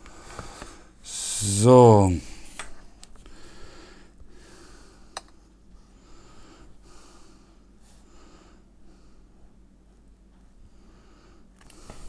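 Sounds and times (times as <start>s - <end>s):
soft breathing puffs: 3.2s - 12.0s.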